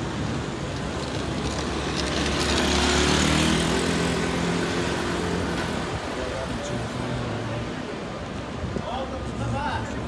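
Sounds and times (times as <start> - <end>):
street noise: 0.0 - 10.0
motor scooter passing: 0.5 - 5.9.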